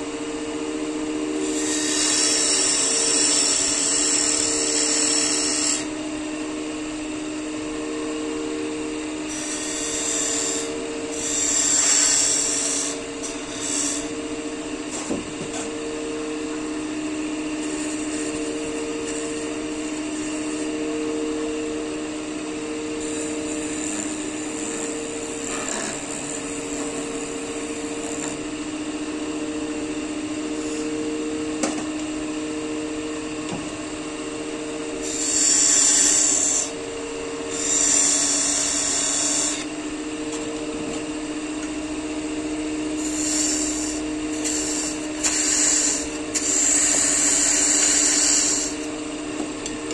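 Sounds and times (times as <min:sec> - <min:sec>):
wood lathe humming: 0:00.0 - 0:07.0, 0:07.6 - 0:14.9, 0:15.6 - 0:31.6, 0:34.7 - 0:49.9
turning tool cutting wood hiss: 0:01.4 - 0:05.9, 0:09.3 - 0:14.1, 0:17.6 - 0:20.7, 0:35.0 - 0:36.7, 0:37.5 - 0:39.7, 0:43.0 - 0:48.9.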